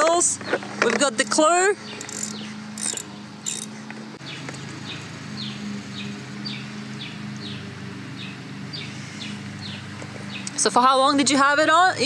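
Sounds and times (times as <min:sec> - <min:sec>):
metallic clinks of hand tool: 0:02.0 - 0:03.7.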